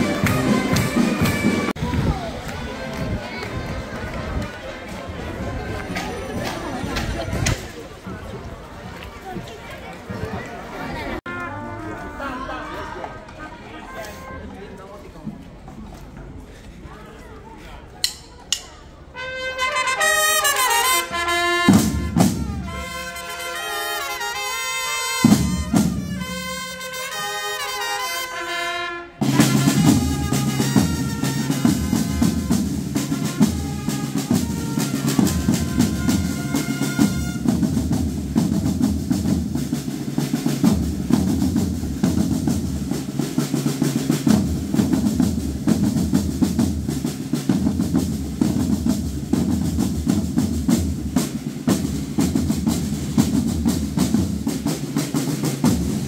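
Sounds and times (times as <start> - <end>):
brass playing: 0.0 - 1.8, 11.2 - 13.3, 19.1 - 37.9
snare and bass drums marching: 0.0 - 2.1, 19.6 - 24.3, 25.0 - 27.8, 29.2 - 56.0.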